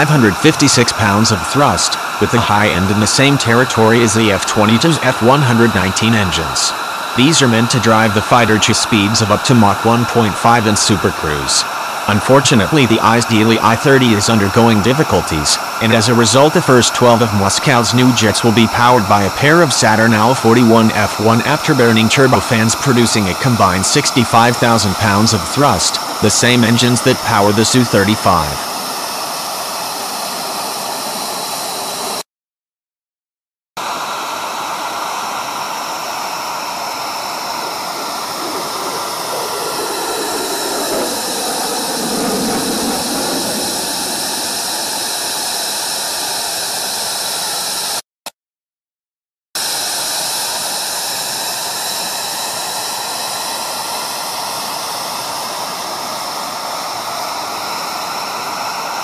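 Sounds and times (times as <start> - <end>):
jet roar: 0.0 - 32.2, 34.0 - 48.0.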